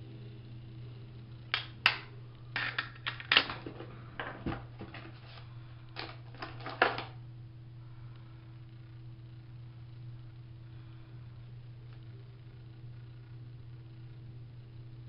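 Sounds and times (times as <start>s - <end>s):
steady low hum: 0.0s - 15.0s
makeup containers clicking: 1.6s - 3.8s.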